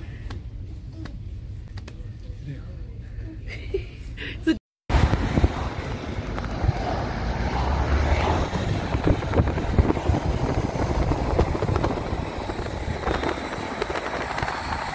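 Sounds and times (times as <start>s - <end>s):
car road and wind noise: 4.9s - 14.9s.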